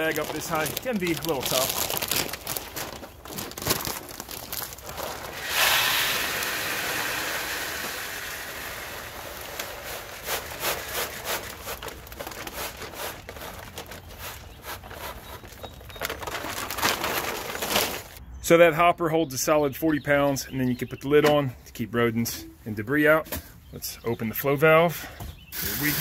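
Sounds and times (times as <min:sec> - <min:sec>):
bag crinkling: 0:00.0 - 0:18.2
pellets rattling: 0:00.0 - 0:18.2, 0:25.6 - 0:26.0
feed pellets pouring into hopper: 0:05.0 - 0:11.5, 0:25.6 - 0:26.0.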